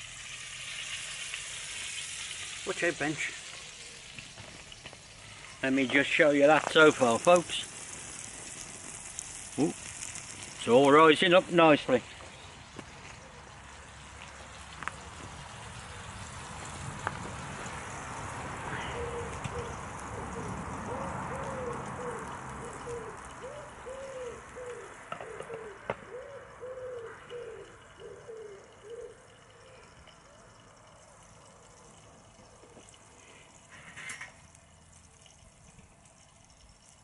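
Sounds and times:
steady hiss: 0.0s - 24.4s
pigeon cooing: 18.6s - 32.8s.

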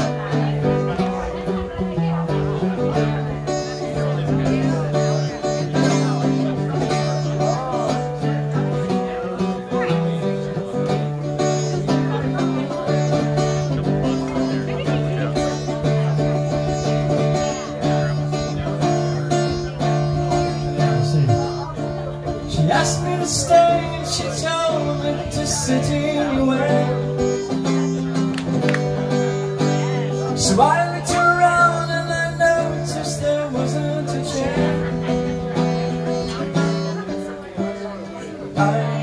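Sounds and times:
cigar box guitar drone and melody: 0.0s - 39.0s
wordless voice wavering: 11.6s - 28.1s.

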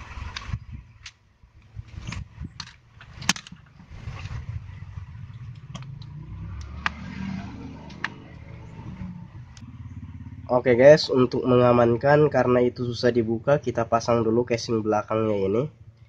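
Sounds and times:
low background rumble: 0.0s - 6.8s.

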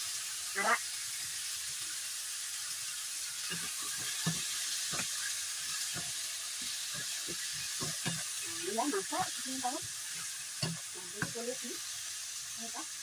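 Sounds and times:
meat sizzling in a wok: 0.0s - 13.0s
spatula scraping a pan: 3.2s - 11.6s.

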